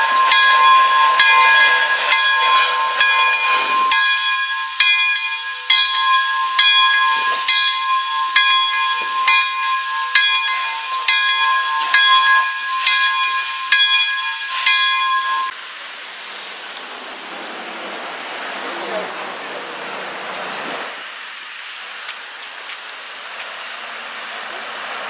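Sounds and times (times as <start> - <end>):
crossing signal bell ringing: 0.0 - 15.6
steam locomotive hissing: 0.0 - 25.0.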